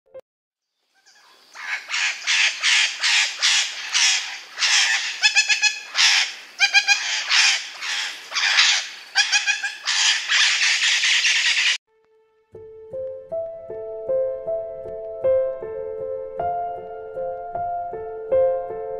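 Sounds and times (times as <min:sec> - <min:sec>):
parrot squawking: 0:01.0 - 0:11.8.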